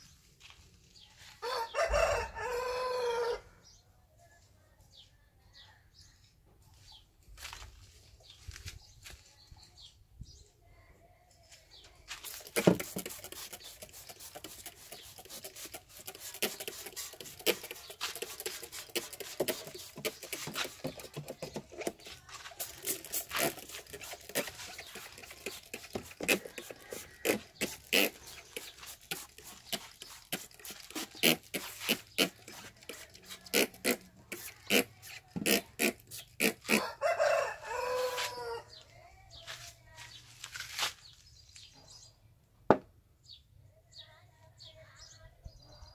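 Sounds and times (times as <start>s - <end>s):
rooster crowing: 1.4s - 3.5s, 36.7s - 38.7s.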